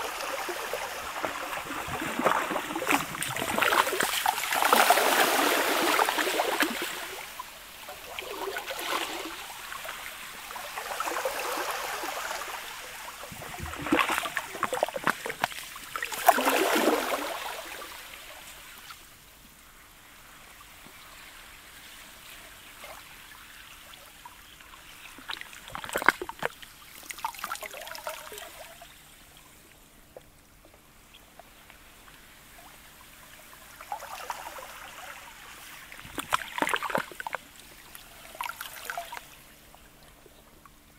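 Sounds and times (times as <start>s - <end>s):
waves of slushy ice lapping shore: 0.0s - 29.6s, 31.5s - 39.9s.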